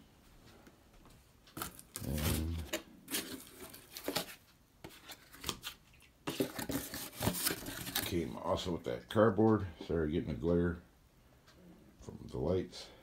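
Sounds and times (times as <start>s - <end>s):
cardboard rustling and scraping: 1.6s - 8.4s.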